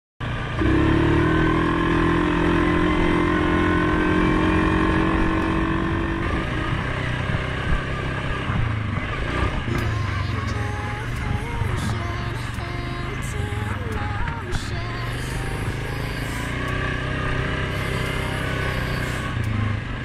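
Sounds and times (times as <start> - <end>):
atv engine running: 0.2 - 20.0.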